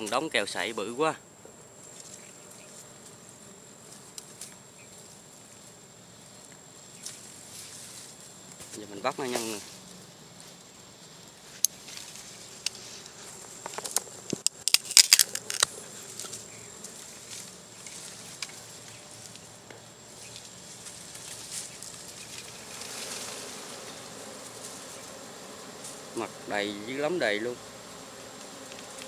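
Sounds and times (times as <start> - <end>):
bees humming: 0.0 - 29.0
dry reed stems snapping: 13.8 - 16.3.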